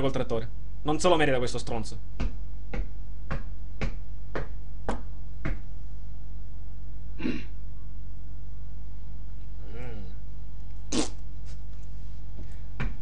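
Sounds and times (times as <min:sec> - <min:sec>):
electrical hum: 0:00.0 - 0:13.0
soft brushing noise: 0:11.4 - 0:12.6.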